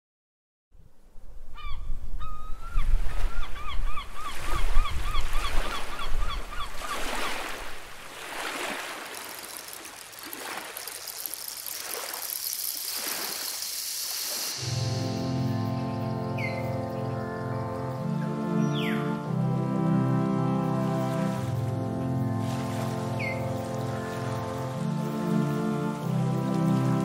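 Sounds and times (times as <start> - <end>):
surf washing in and out: 4.1 - 16.5.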